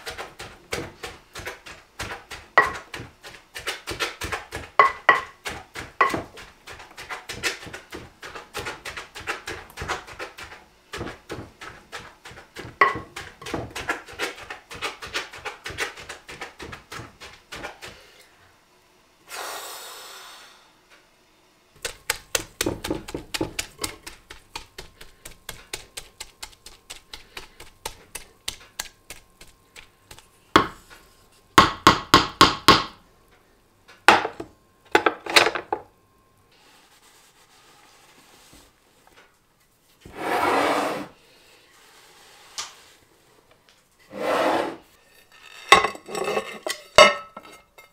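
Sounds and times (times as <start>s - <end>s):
wooden tamper pounding cabbage: 0.0s - 18.0s, 21.8s - 30.8s, 31.6s - 33.0s.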